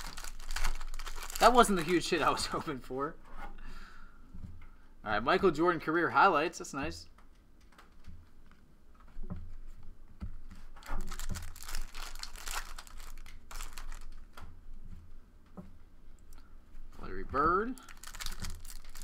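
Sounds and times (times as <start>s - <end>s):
wrapper tearing and crinkling: 0.0s - 2.0s, 10.8s - 14.3s, 17.8s - 19.0s.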